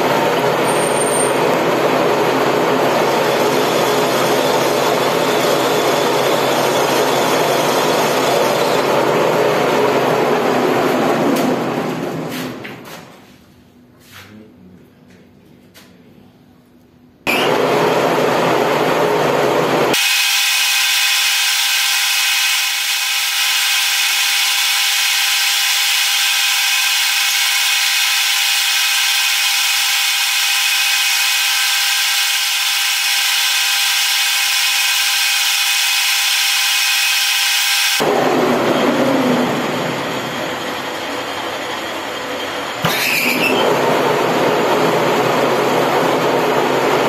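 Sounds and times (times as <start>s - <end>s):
low machine noise: 0.0s - 47.0s
lathe cutting high-pitched whine: 2.7s - 9.1s, 19.9s - 44.0s.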